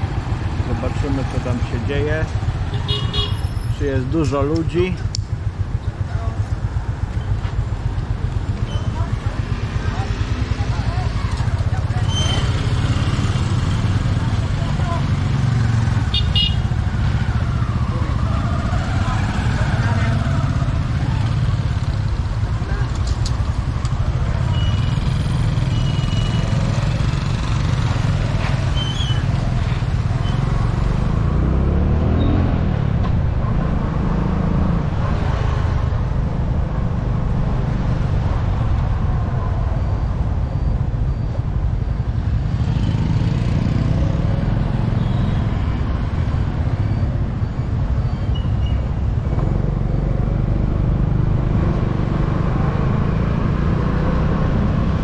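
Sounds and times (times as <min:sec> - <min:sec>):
motorbikes passing: 0:00.0 - 0:55.0.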